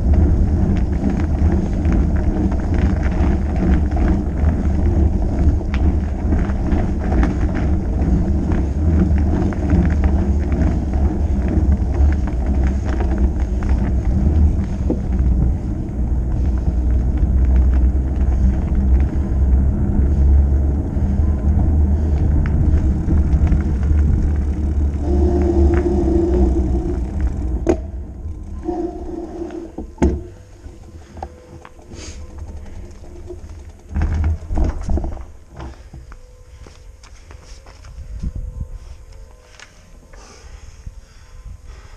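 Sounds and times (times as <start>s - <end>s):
wind on microphone: 0.0s - 30.3s, 37.9s - 39.2s
wide bike tyres rolling on asphalt: 0.0s - 41.9s
ticks and rattles: 31.0s - 35.7s.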